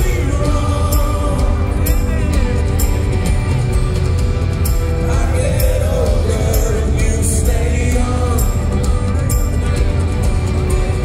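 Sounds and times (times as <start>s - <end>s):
drums with cymbal hits: 0.0s - 11.0s
live rock band: 0.0s - 11.0s.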